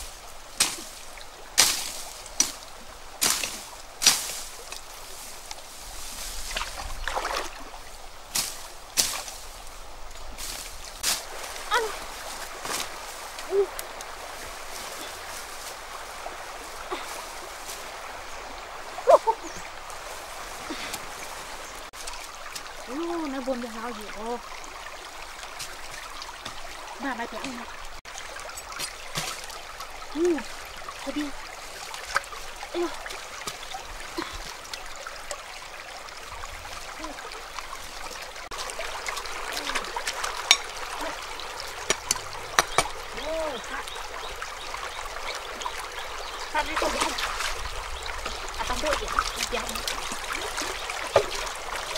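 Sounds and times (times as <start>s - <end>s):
shallow stream running: 0.0s - 51.9s
blade knocking on stones: 41.8s - 43.0s.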